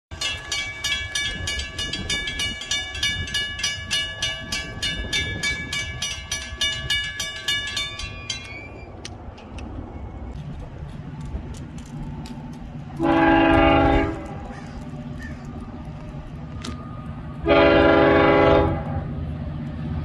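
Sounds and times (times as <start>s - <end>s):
crossing warning bell ringing: 0.1s - 10.4s, 13.0s - 14.6s, 15.6s - 19.1s.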